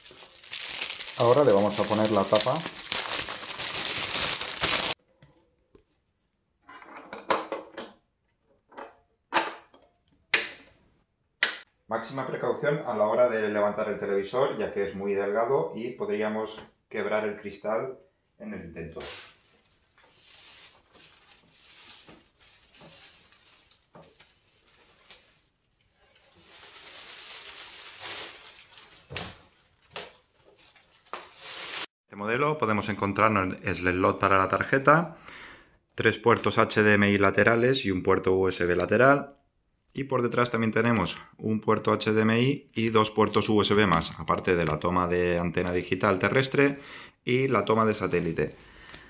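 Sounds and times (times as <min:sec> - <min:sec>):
plastic sheeting rustling: 0:00.0 - 0:05.0, 0:19.0 - 0:31.9
plastic wrapping crinkling: 0:00.0 - 0:05.0, 0:19.0 - 0:31.9.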